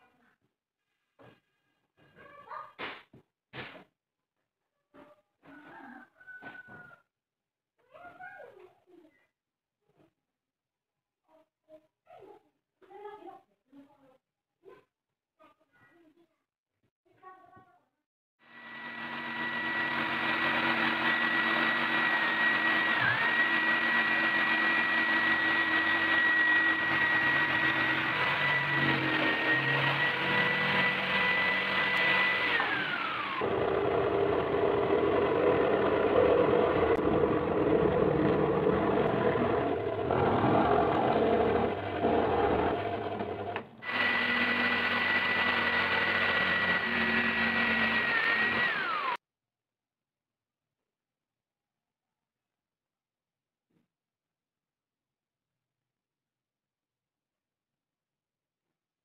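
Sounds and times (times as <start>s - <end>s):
electric jigsaw sawing plywood: 18.5s - 49.2s.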